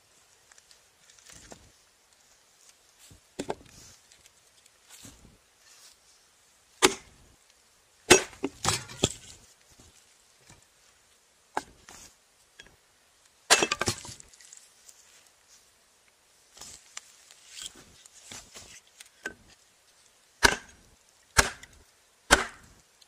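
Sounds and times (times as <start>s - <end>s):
hatchet chopping wood: 6.8s - 7.1s, 8.1s - 9.2s, 13.5s - 14.0s, 20.4s - 20.8s, 21.4s - 22.8s.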